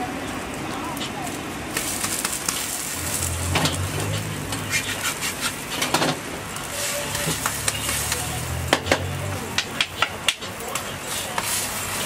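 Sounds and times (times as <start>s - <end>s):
food sizzling on griddle: 0.0s - 12.0s
spatula scraping and tapping: 7.1s - 11.6s.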